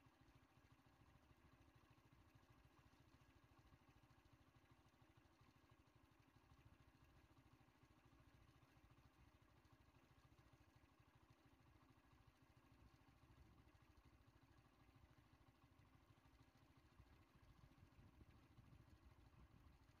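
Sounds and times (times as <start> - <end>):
faint low rumble: 11.8 - 20.0.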